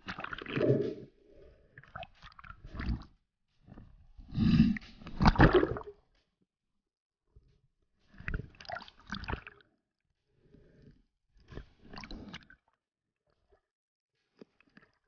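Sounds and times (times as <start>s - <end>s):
bubbles gurgling underwater: 5.2s - 5.9s.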